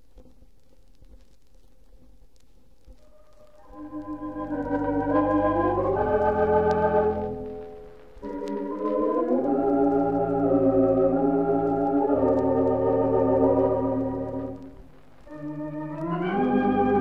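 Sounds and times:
pipe organ playing held chords: 0:03.1 - 0:14.7, 0:15.3 - 0:17.0.

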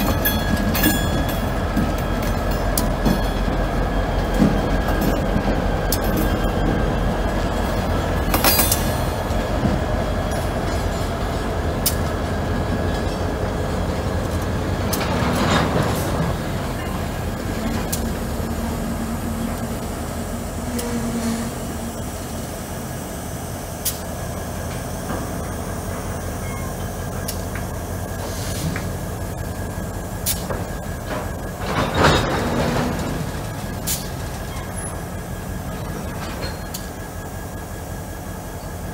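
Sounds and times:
diesel locomotive engine rumbling: 0:00.0 - 0:38.9
sharp knocks from train: 0:30.2 - 0:34.2.

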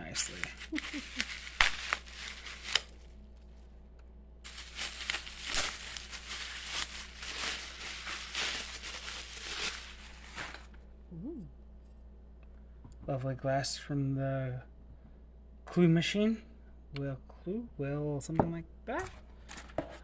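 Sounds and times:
bubble wrap crinkling: 0:00.0 - 0:03.8, 0:04.4 - 0:10.8.

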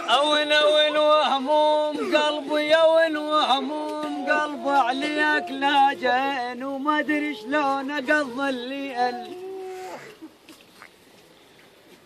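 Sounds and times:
man chanting: 0:00.0 - 0:09.8.

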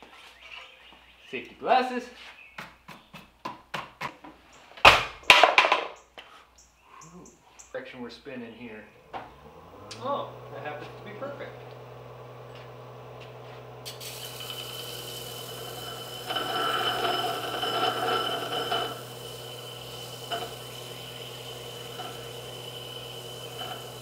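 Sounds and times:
disc sander whining: 0:09.0 - 0:24.0
knife blade sanding: 0:14.0 - 0:24.0.

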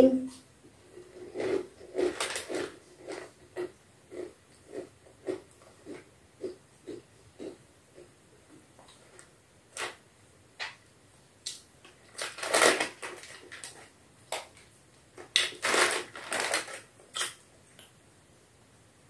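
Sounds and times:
plastic snack packet crinkling: 0:01.2 - 0:03.7, 0:11.9 - 0:17.4.

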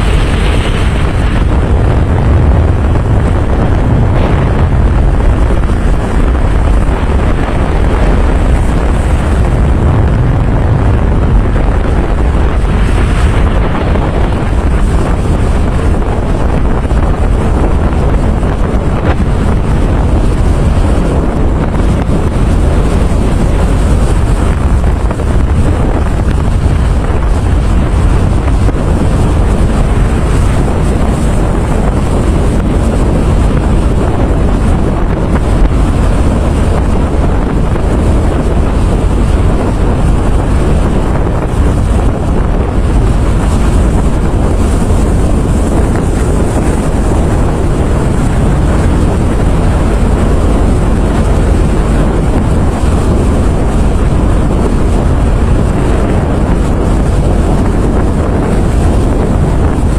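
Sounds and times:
storm wind on microphone: 0:00.0 - 0:59.9.

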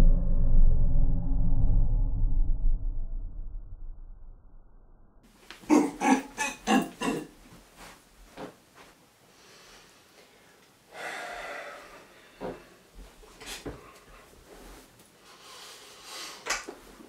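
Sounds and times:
person grunting snorts: 0:05.7 - 0:07.3
breathy rush of air: 0:09.3 - 0:12.9.

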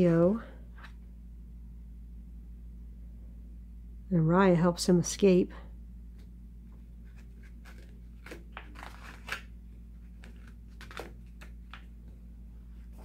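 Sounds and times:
glossy paper pages rustling: 0:06.9 - 0:11.9.

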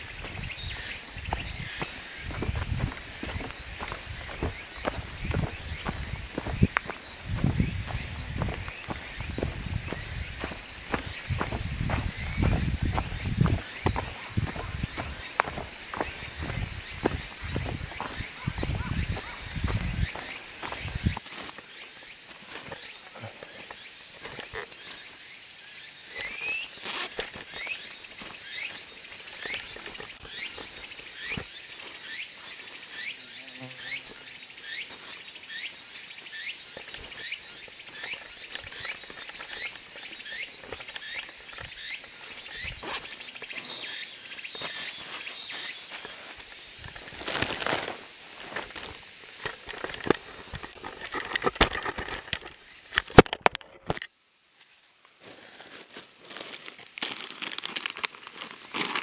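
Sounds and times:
footsteps on dirt: 0:00.0 - 0:24.9, 0:26.2 - 0:32.6, 0:36.5 - 0:53.2
insects droning: 0:00.0 - 0:59.0.

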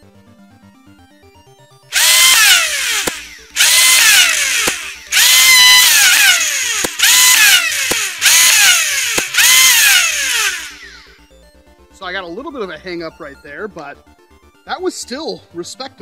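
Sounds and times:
flywheel motors whining: 0:01.9 - 0:11.2
toy dart firing click: 0:02.0 - 0:10.7.

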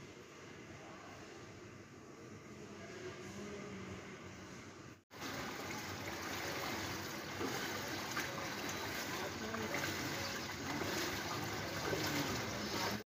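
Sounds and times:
outdoor ambient noise: 0:00.0 - 0:13.0
faint water sounds: 0:05.1 - 0:13.0.

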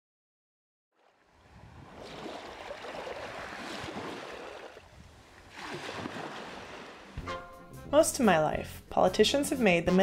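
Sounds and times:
sea waves washing in: 0:01.0 - 0:07.2.

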